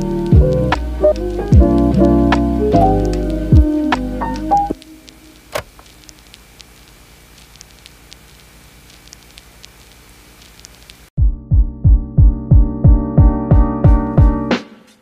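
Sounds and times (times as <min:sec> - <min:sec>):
keyboard music with steady beat: 0:00.0 - 0:06.1, 0:11.2 - 0:15.0
light clicks and crackles: 0:04.0 - 0:11.0.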